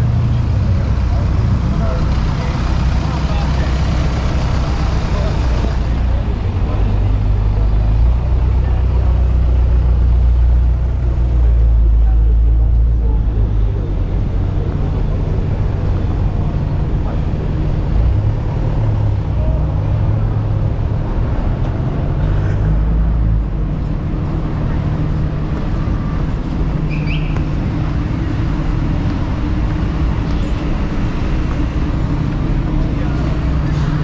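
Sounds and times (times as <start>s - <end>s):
low rumble of road traffic: 0.0s - 34.0s
background voices: 27.4s - 34.0s.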